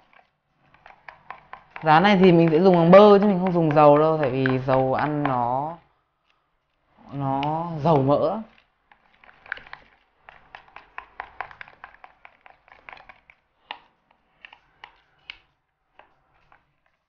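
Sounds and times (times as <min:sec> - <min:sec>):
whisk clicking against bowl: 0:00.0 - 0:05.8, 0:07.2 - 0:13.8
soft wet stirring: 0:00.0 - 0:17.0.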